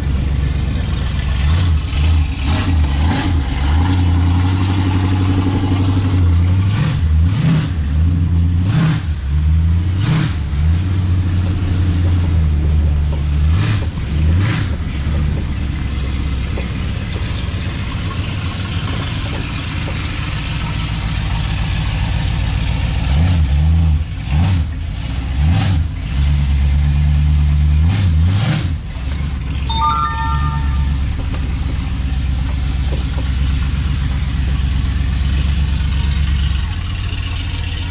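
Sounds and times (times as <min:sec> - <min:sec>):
large engine revving: 0:01.2 - 0:11.4.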